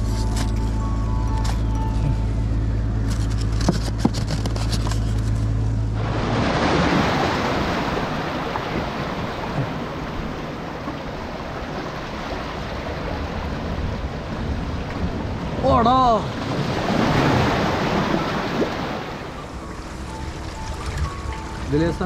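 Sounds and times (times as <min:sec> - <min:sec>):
clicks and rustles: 0:03.0 - 0:05.5
wind rumbling on microphone: 0:05.9 - 0:21.7
sea surf washing over rocks: 0:06.0 - 0:19.4
background music: 0:19.3 - 0:22.0.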